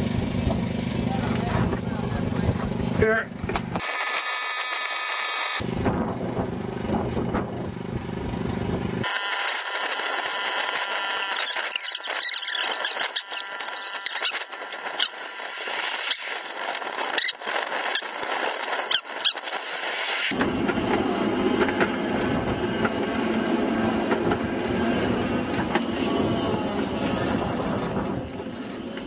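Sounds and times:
train rumbling along track: 5.6s - 9.1s, 16.5s - 29.0s.

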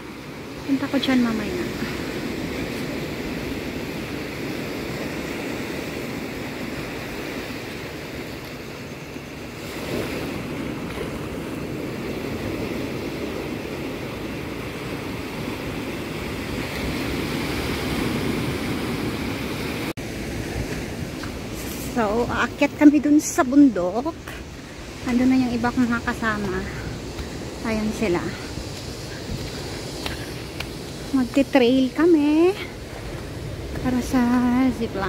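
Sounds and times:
sea waves washing ashore: 0.0s - 35.0s
wind on microphone: 0.0s - 35.0s.

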